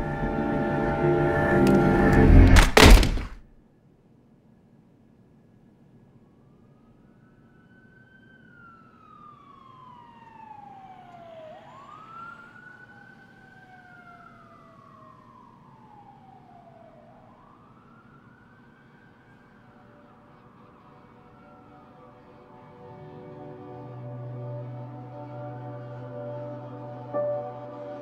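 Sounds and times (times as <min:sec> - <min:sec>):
emergency sirens wailing: 0:00.0 - 0:02.6, 0:06.3 - 0:28.0.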